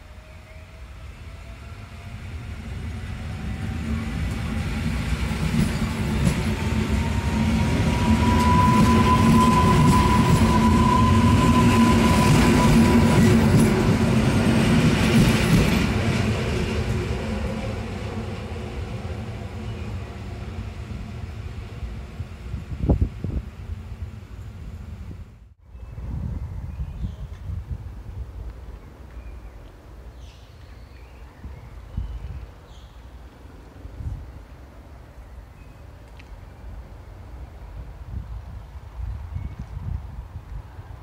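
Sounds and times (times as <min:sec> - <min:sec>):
wheels rumbling on rail: 0:00.1 - 0:25.4.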